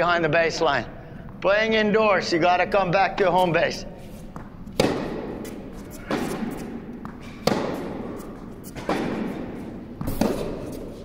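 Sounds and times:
tennis ball pops off rackets: 4.4 - 10.9.

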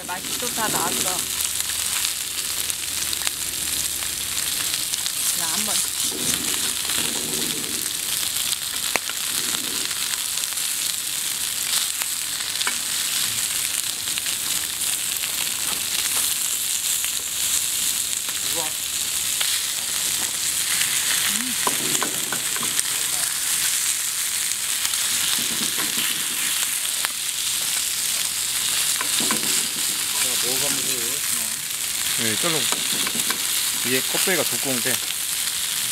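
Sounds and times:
meat sizzling on griddle: 0.0 - 35.9.

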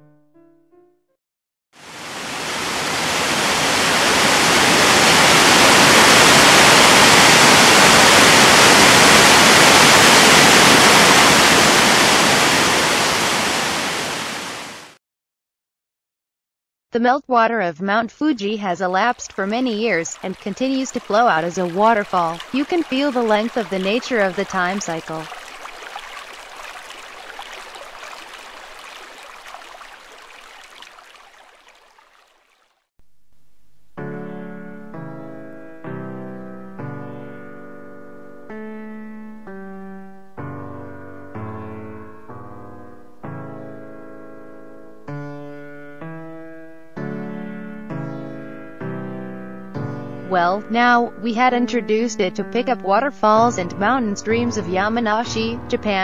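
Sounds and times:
waterfall roaring onto rocks: 1.8 - 15.0, 19.2 - 32.4.

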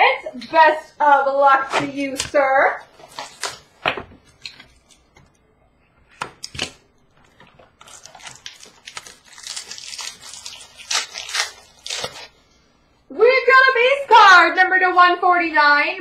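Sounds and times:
wrapper crinkling and tearing: 2.2 - 5.0, 6.4 - 12.4
packaging snapping: 6.2 - 12.3.

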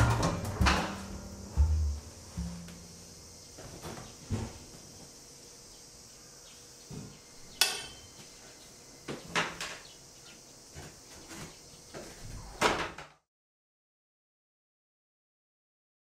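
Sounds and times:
faint steady hiss: 0.0 - 12.4.

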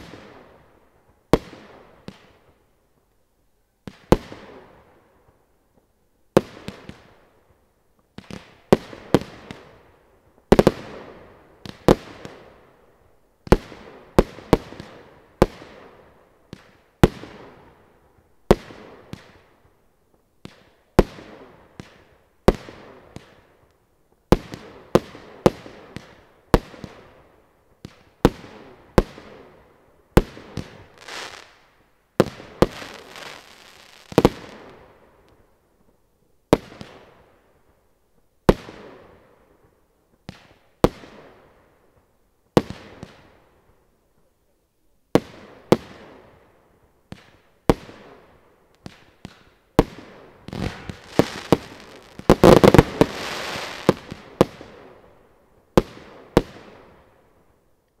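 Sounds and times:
rapid flurry of firework bangs: 32.2 - 34.8, 48.8 - 54.9
firework shells bursting: 50.4 - 54.2.

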